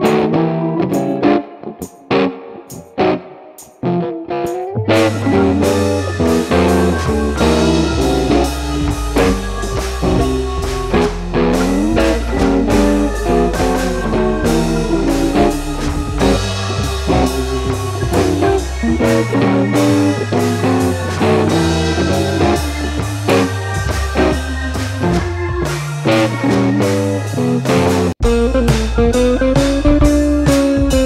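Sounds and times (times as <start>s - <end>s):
blues-rock music with guitar: 0.0s - 31.0s.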